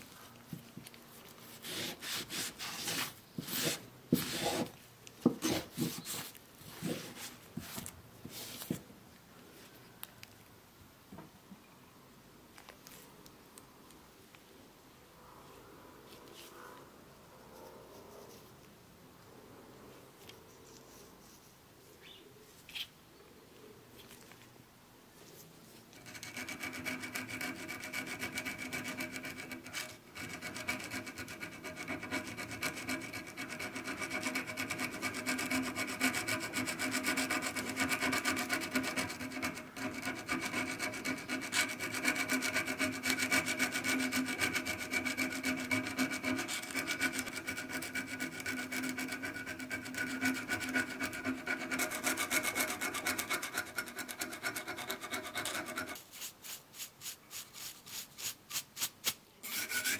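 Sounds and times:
steel file scraping metal: 26.0 - 56.0, 59.4 - 59.9.

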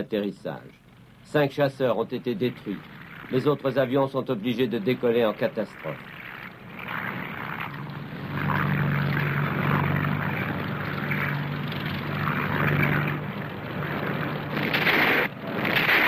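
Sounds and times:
propeller aircraft engines droning: 0.0 - 16.0.

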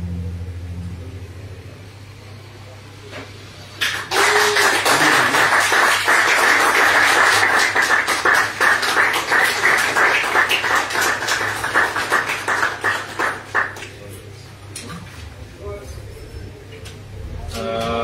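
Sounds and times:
audience applauding: 3.8 - 14.1.

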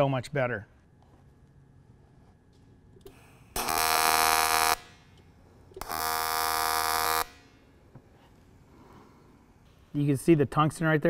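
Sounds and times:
welding arc buzzing: 3.0 - 5.2, 5.8 - 7.8.

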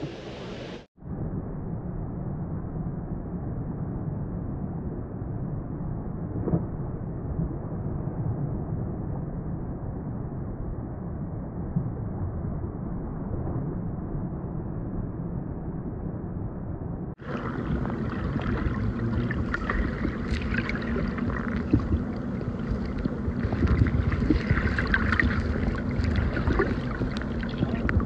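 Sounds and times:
low underwater rumble: 1.0 - 28.0
muffled waterfall rushing: 17.2 - 28.0
underwater bubbling and crackling: 17.2 - 28.0.

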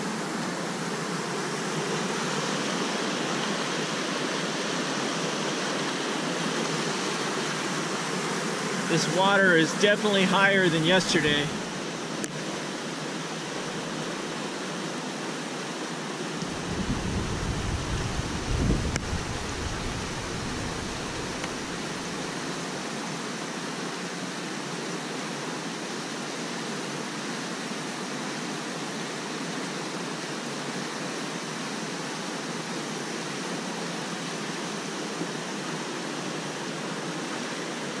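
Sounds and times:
floodwater rushing: 0.0 - 23.4.

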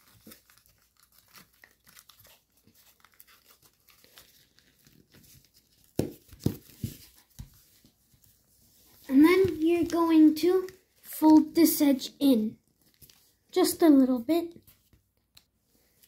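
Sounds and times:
foil paper crinkling: 0.0 - 7.4, 12.7 - 13.4.

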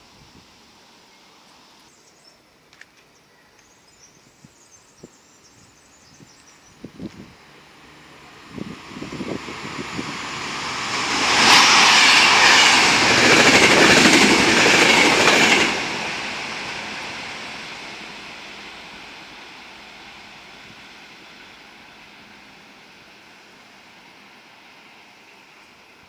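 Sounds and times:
train passing at high speed: 6.5 - 26.0.

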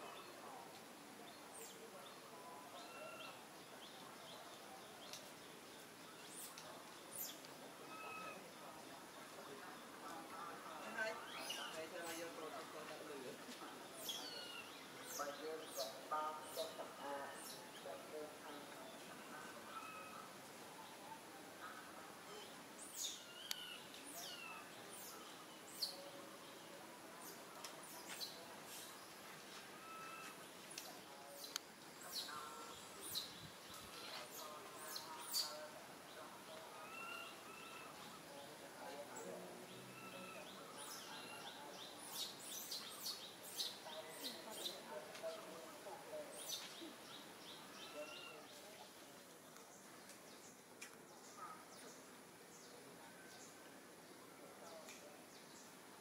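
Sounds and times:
faint outdoor background noise: 0.0 - 56.0
bird chirping: 13.7 - 29.2, 29.8 - 45.5.

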